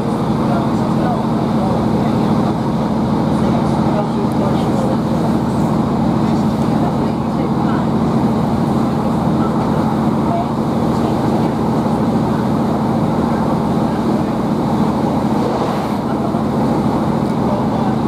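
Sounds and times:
diesel engine hum: 0.0s - 18.0s.

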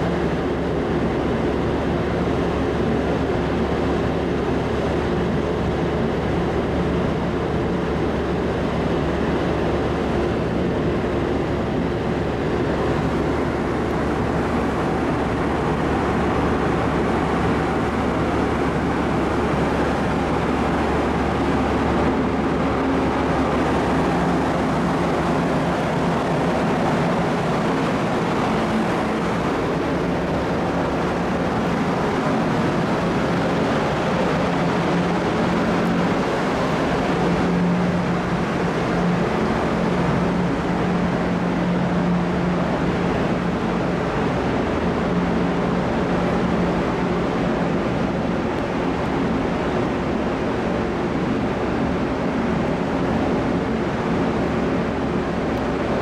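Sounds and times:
low hum: 0.0s - 56.0s
ventilation fans rushing: 0.0s - 56.0s.

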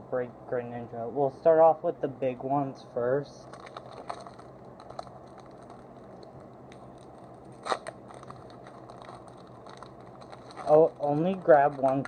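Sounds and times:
foil wrapper crinkling: 3.4s - 12.0s
sharp wrapper rip: 7.5s - 12.0s.

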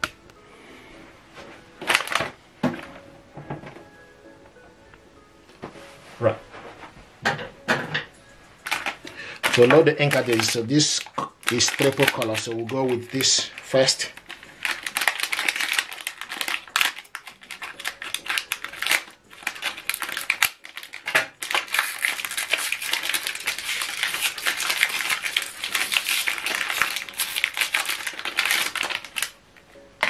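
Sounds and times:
plastic wrapper crinkling: 1.8s - 2.8s, 8.6s - 29.4s.

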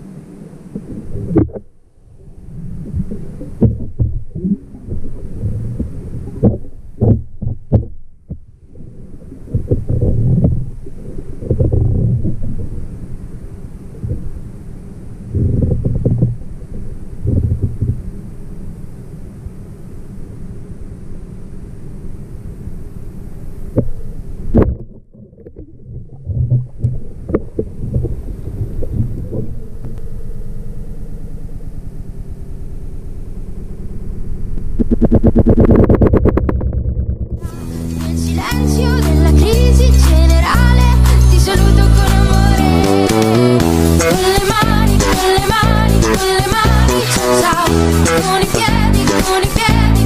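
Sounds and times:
muffled underwater water rumble: 0.0s - 49.0s
sharp clicks and knocks: 6.4s - 8.5s, 34.7s - 37.4s.

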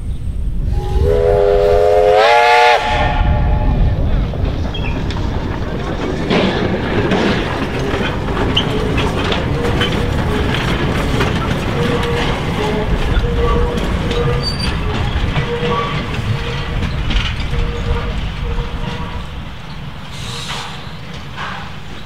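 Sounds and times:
train rumbling along track: 0.0s - 22.0s
wheels clicking over rail joints: 3.9s - 22.0s
wheel squeals: 8.0s - 21.7s.

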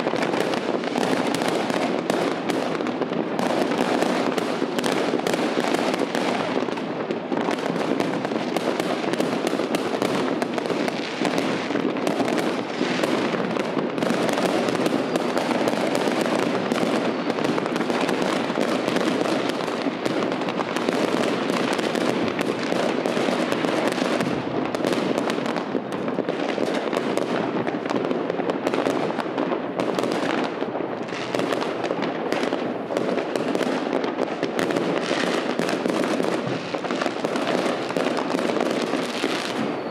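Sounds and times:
fireworks crackling and banging: 0.0s - 39.9s.

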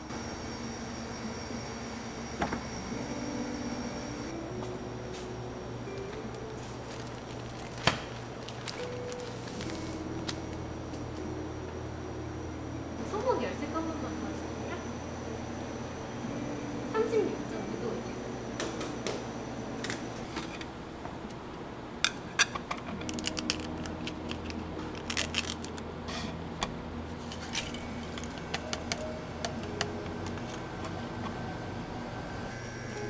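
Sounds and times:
low hum: 0.0s - 18.6s, 22.9s - 33.0s
plastic packet crinkling: 6.3s - 10.6s, 23.0s - 25.8s.

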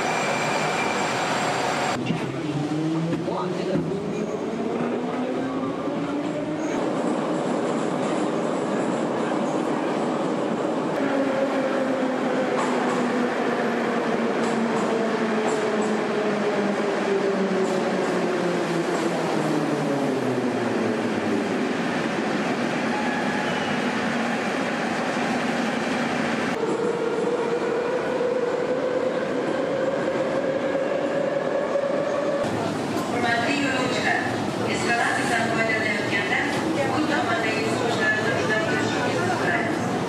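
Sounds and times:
metro train rumble: 0.0s - 40.0s.

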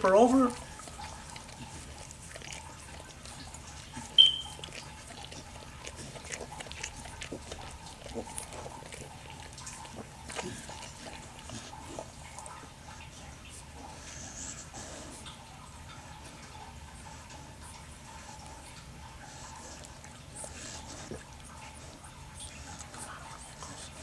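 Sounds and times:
dog licking and chewing: 0.0s - 24.0s
puppy squeak: 4.2s - 4.6s.

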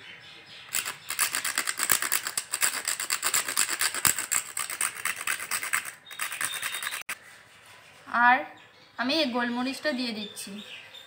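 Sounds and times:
spice grated by hand: 0.7s - 7.2s.

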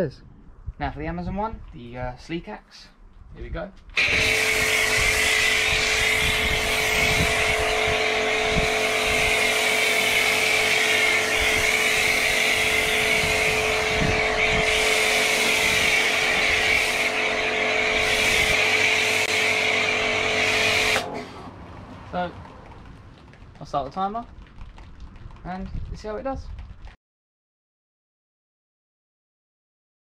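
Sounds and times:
hiss of foam spray: 4.0s - 21.4s
pressure washer motor hum: 4.0s - 21.6s.

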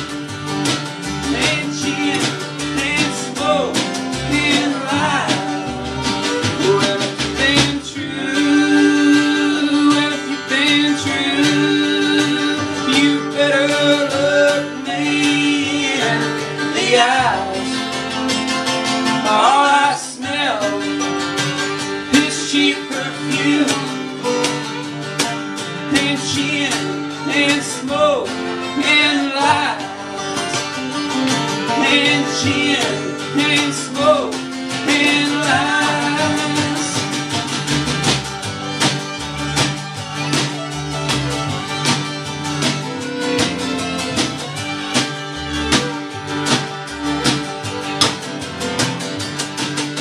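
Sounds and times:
hand drum beat: 0.0s - 17.4s, 29.4s - 50.0s
fiddle: 0.0s - 50.0s
strummed acoustic guitar: 0.0s - 50.0s
upright bass: 0.0s - 50.0s
man singing: 1.2s - 18.2s, 19.0s - 21.3s, 22.0s - 24.5s, 25.7s - 30.9s, 31.6s - 37.6s.

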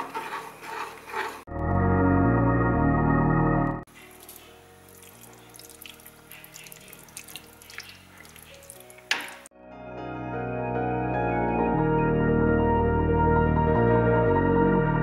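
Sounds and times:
spatula stirring thick cream: 0.0s - 1.5s
organ-like music: 1.5s - 5.5s, 9.5s - 15.0s.

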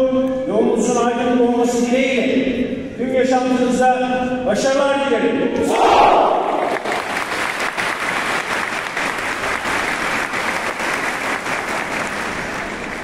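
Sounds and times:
crowd applauding: 6.5s - 13.0s.

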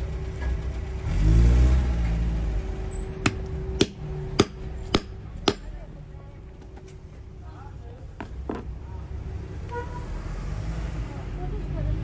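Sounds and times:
small hammer tapping: 3.2s - 5.7s
vehicle passing: 9.0s - 12.0s.

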